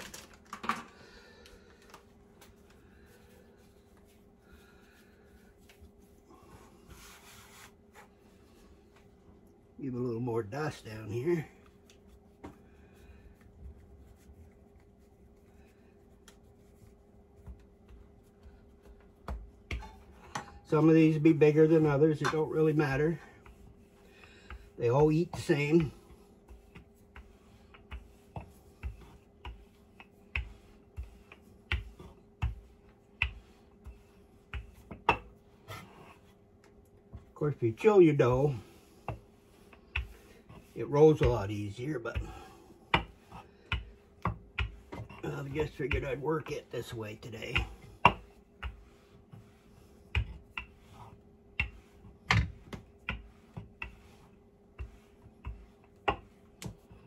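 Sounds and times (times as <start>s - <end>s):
rolling pin knocking on board: 47.5s - 51.0s.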